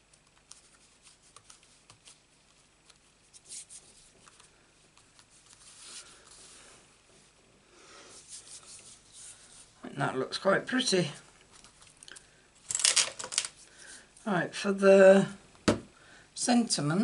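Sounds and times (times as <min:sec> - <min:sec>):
paper card rustling and scraping: 0:00.5 - 0:04.4.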